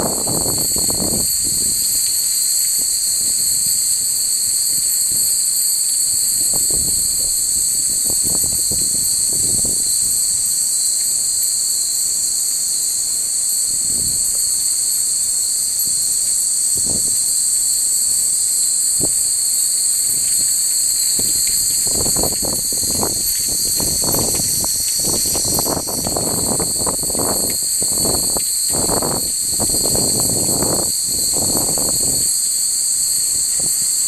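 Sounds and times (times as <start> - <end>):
wind rumble on microphone: 0.0 - 3.4, 6.2 - 10.6, 13.7 - 14.5, 16.7 - 17.4, 18.9 - 32.4
insects droning: 0.0 - 34.0.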